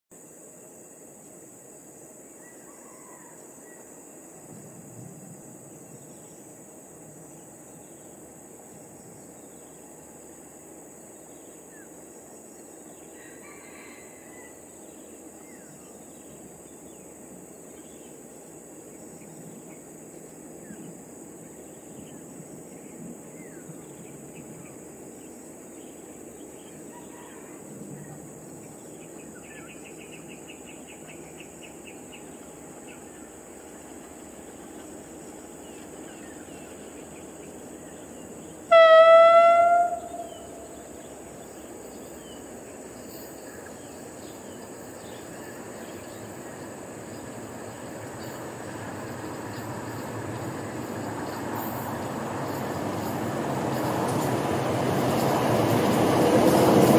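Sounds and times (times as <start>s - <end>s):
high-pitched insect drone: 38.7s - 41.6s.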